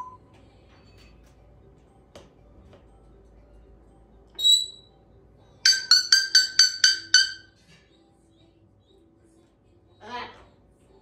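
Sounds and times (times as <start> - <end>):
parrot whistling: 4.4 - 4.9.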